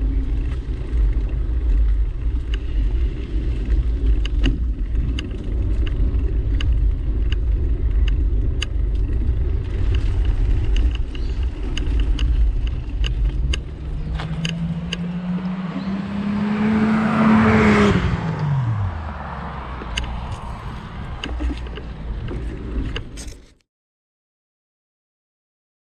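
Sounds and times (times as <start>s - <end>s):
low rumble: 0.0s - 23.6s
footsteps: 13.2s - 16.6s
car passing by: 13.7s - 22.6s.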